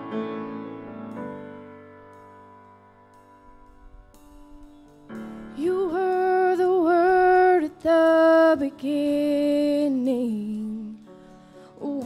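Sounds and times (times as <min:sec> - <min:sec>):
soft keyboard accompaniment: 0:00.0 - 0:12.0
woman singing slow song: 0:05.5 - 0:12.0.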